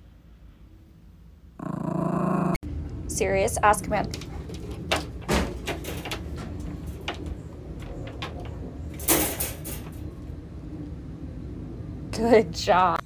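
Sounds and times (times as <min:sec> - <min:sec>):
wire crate rattling: 0:04.0 - 0:10.1.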